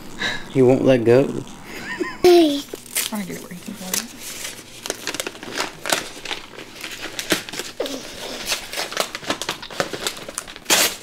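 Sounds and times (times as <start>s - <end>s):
wrapping paper crinkling: 2.7s - 11.0s.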